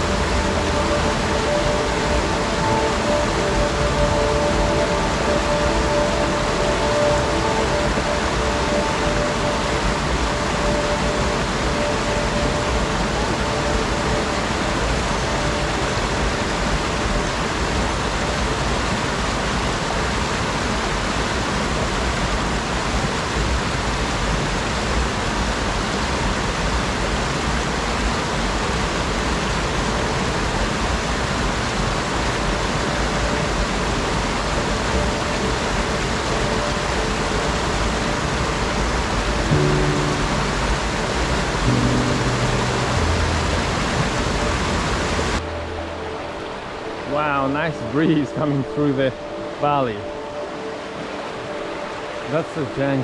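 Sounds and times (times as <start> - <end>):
stream rushing over boulders: 0.0 - 53.0.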